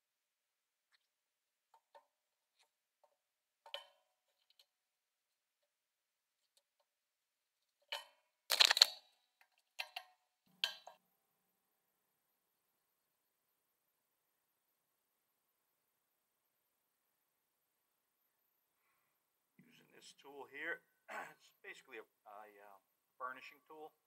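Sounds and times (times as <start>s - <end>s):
hands handling tools clicking: 7.9s - 9.0s.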